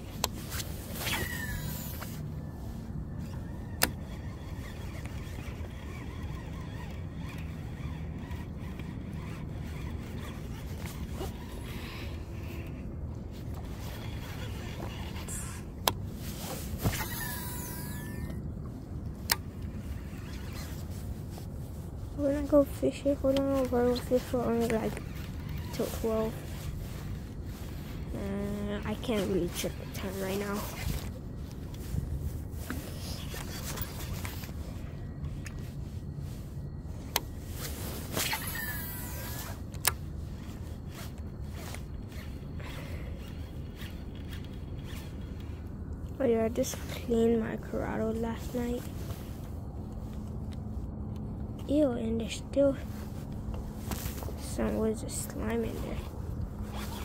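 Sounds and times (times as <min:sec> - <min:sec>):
low wind rumble: 0:00.0 - 0:57.0
fishing reel spool whining: 0:00.2 - 0:18.5, 0:19.3 - 0:20.9, 0:23.7 - 0:35.8, 0:36.4 - 0:46.0, 0:55.5 - 0:57.0
reel clicks: 0:03.2 - 0:12.8, 0:41.6 - 0:45.6.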